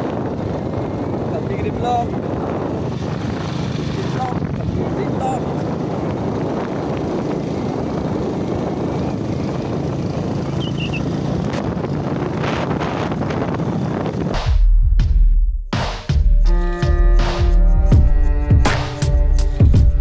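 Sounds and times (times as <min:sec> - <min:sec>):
motorcycle engine running: 0:00.0 - 0:14.4
wind noise on microphone: 0:00.0 - 0:14.7.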